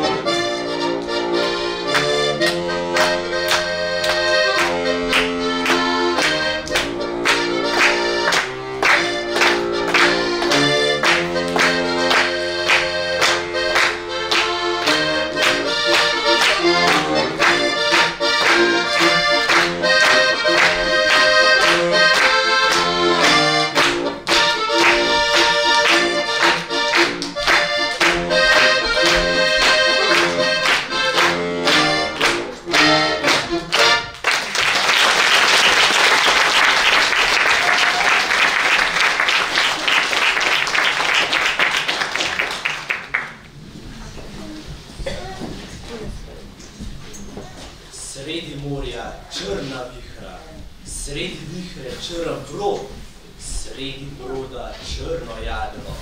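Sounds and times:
accordion playing quick notes: 0:00.0 - 0:34.2
audience applauding: 0:01.9 - 0:43.6.

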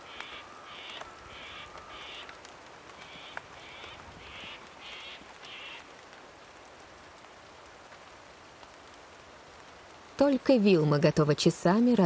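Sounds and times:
bird calling: 0:00.0 - 0:02.4, 0:03.0 - 0:05.9
heavy rain falling: 0:00.0 - 0:12.0.

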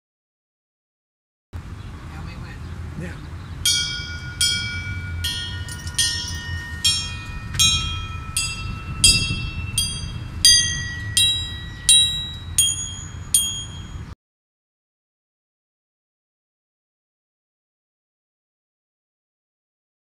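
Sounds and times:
low background rumble: 0:01.6 - 0:14.1
metal pipe chimes ringing: 0:03.6 - 0:14.2.

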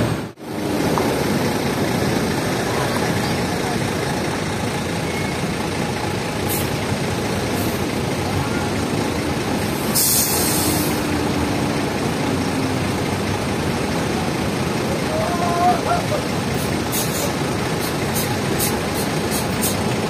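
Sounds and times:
diesel coach engines running: 0:00.0 - 0:20.0
air brakes hissing: 0:06.5 - 0:06.8, 0:09.7 - 0:11.0, 0:16.5 - 0:19.9.

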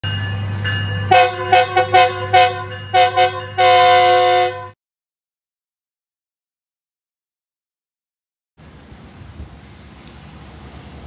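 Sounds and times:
locomotive engine humming: 0:00.0 - 0:04.8, 0:08.6 - 0:11.0
locomotive air horn blasts: 0:01.1 - 0:04.8.

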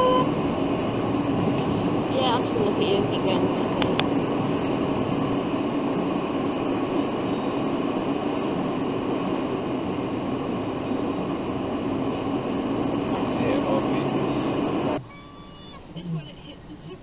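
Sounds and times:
car engine hum inside cabin: 0:00.0 - 0:17.0.

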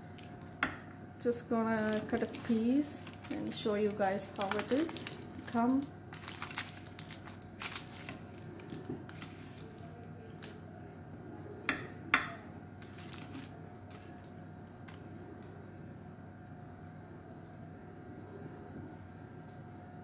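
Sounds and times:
knife scraping foil and tray: 0:12.8 - 0:14.1.

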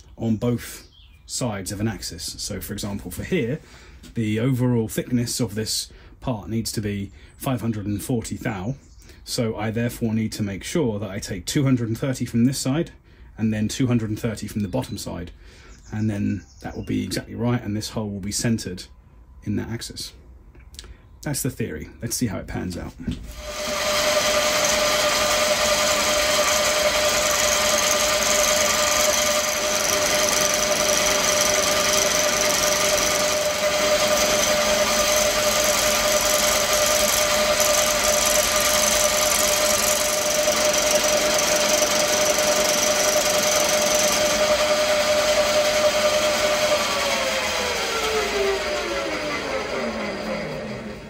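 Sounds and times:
milling machine motor whine: 0:23.3 - 0:51.0.

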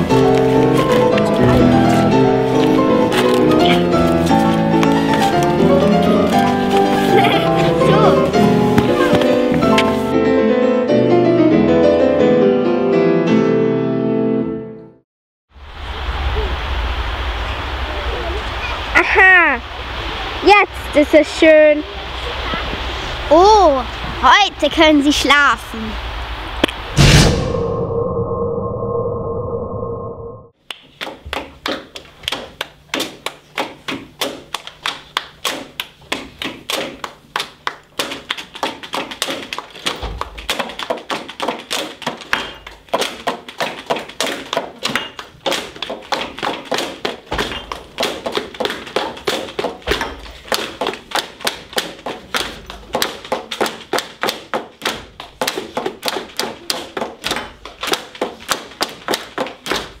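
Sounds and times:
children knocking cans on desks: 0:38.0 - 1:00.0.

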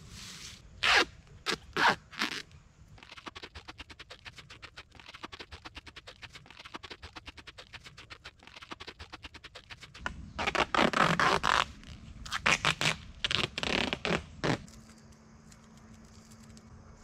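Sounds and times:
duct tape ripping off roll: 0:00.8 - 0:02.4, 0:03.0 - 0:14.7.

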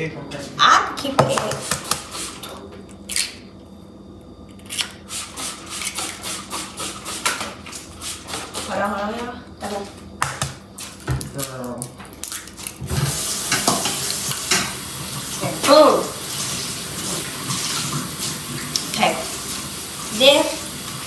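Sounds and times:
tap running into a sink: 0:12.9 - 0:15.3.

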